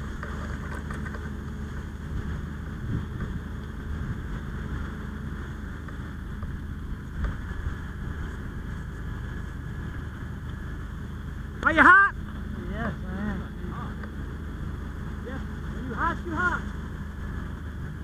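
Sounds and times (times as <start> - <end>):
fire engine pump drone: 0.0 - 18.0.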